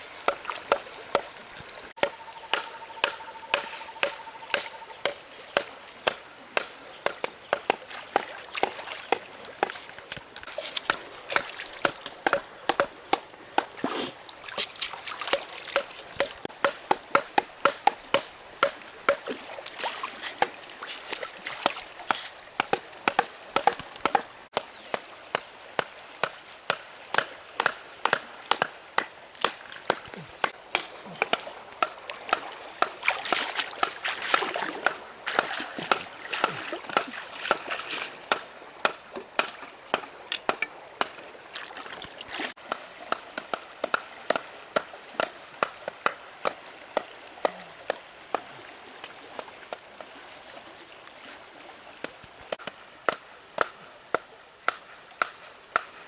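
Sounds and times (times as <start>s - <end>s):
shallow flowing water: 0.0s - 56.0s
sharp wooden knocks: 2.0s - 8.8s, 10.9s - 13.7s, 15.8s - 19.3s, 22.1s - 24.6s.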